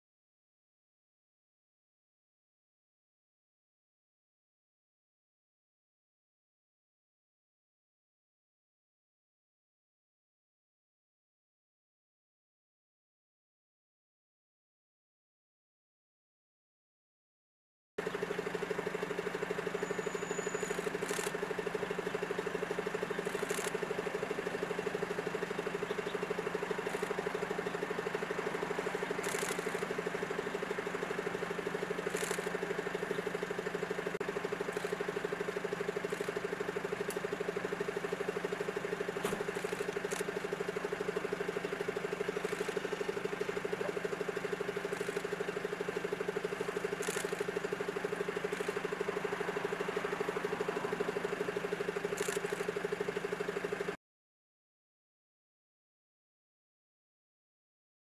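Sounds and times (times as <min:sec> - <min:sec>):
machine humming: 0:18.0 - 0:53.2.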